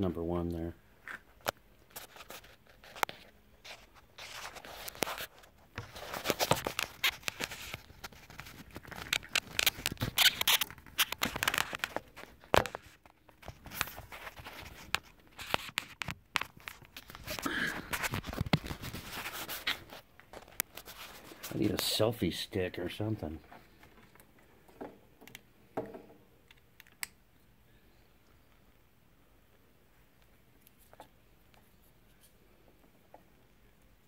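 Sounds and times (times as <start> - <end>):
rubbing against microphone: 1.9 - 22.0.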